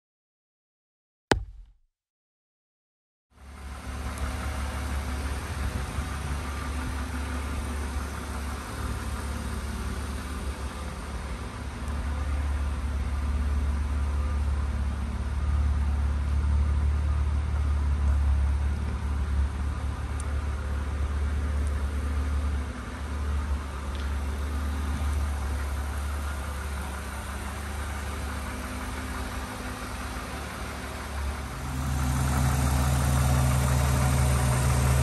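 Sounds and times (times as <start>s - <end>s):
car engine idling: 3.5s - 13.9s, 18.8s - 35.0s.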